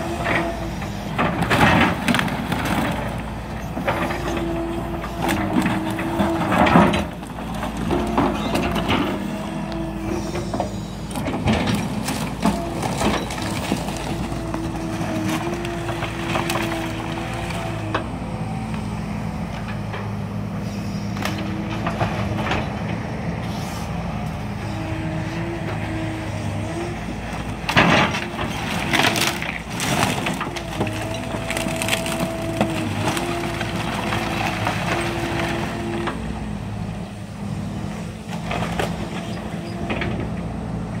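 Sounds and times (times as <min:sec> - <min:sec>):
heavy machine engine running: 0:00.0 - 0:41.0
wood cracking and splintering: 0:11.1 - 0:17.9, 0:27.4 - 0:36.1.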